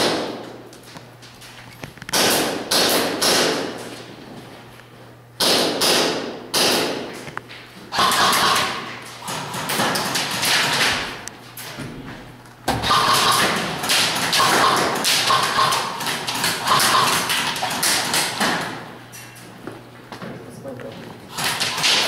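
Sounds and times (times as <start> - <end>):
airsoft guns firing in bursts: 2.1 - 3.8, 5.4 - 7.1, 7.9 - 11.2, 12.8 - 18.8, 21.3 - 22.0
pellets smacking wooden barricades: 8.0 - 12.0, 12.7 - 18.8, 21.4 - 22.0.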